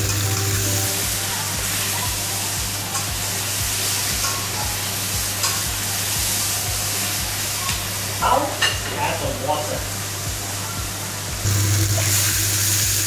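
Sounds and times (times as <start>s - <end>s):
wings sizzling in a wok: 0.0s - 13.0s.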